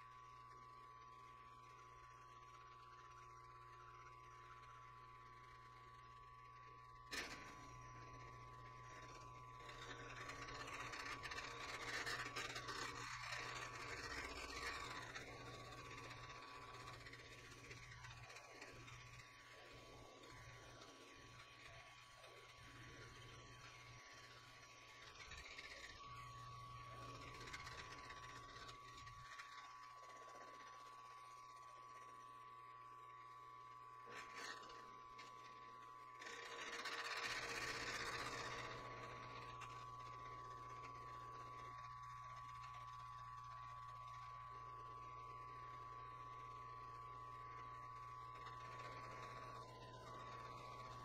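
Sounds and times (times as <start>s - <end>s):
milling machine motor hum and whine: 0.0s - 51.0s.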